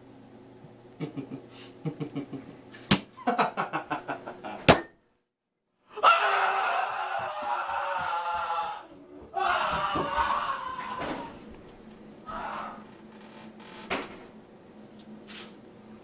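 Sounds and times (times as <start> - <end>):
sharp slaps: 2.9 - 3.1
man screaming: 5.9 - 11.4, 12.2 - 12.9.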